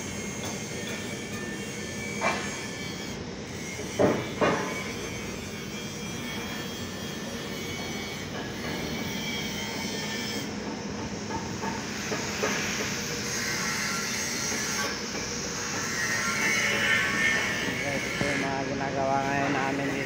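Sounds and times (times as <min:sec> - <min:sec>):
workshop machinery noise: 0:00.0 - 0:20.0
sharp knocks: 0:04.0 - 0:04.8.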